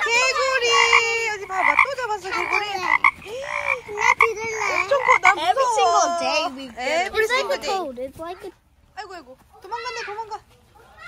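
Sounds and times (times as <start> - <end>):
frog croaking: 0.0 - 5.4.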